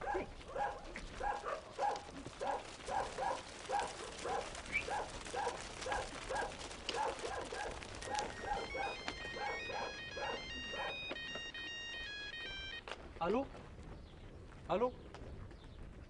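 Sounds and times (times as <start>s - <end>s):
dog barking: 0.0s - 11.2s
phone ringtone: 8.3s - 12.9s.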